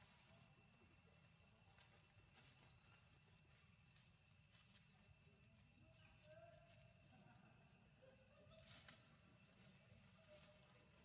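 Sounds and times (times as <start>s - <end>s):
rustles in dry leaves: 8.4s - 11.0s.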